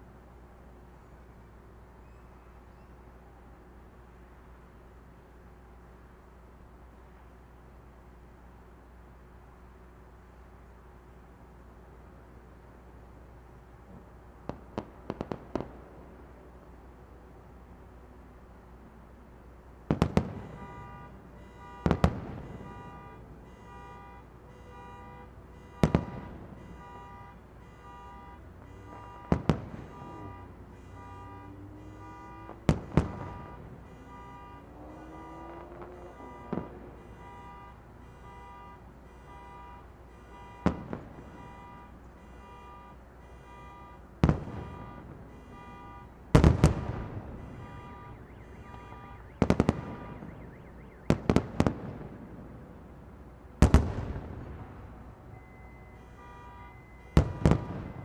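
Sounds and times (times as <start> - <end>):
distant fireworks bangs: 13.9 - 16.3, 19.8 - 23.8, 25.6 - 37.6, 40.2 - 42.4, 43.4 - 52.6, 53.6 - 55.1, 56.2 - 58.0
electronic alarm beeping: 55.3 - 57.2.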